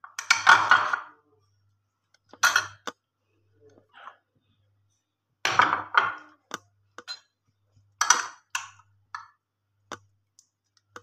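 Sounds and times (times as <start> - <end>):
glass dishes and spoon clinking: 2.4 - 2.9, 7.0 - 7.4, 8.0 - 9.3.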